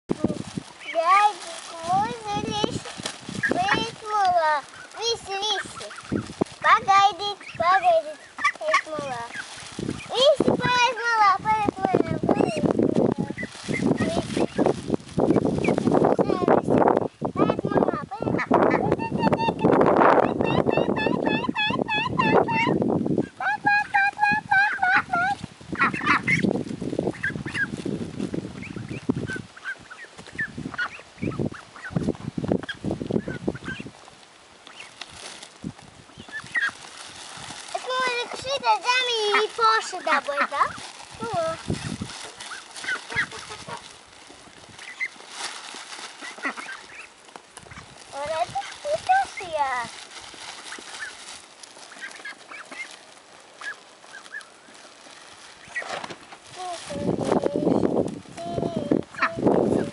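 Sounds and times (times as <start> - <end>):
ducks quacking: 0.8 - 11.0, 17.4 - 27.8, 28.6 - 33.9, 37.7 - 44.0, 45.9 - 49.9, 50.6 - 54.8, 59.1 - 59.9.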